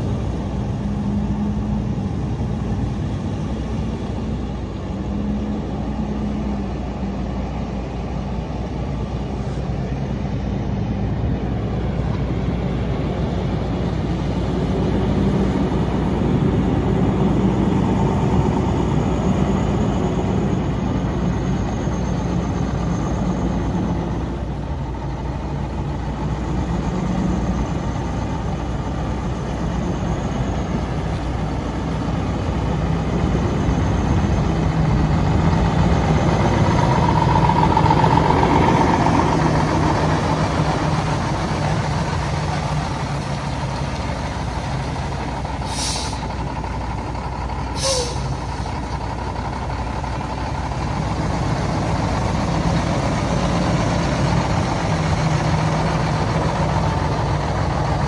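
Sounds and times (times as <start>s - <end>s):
diesel truck engine running: 0.0s - 58.0s
air brake hiss: 45.6s - 46.3s, 47.7s - 48.5s.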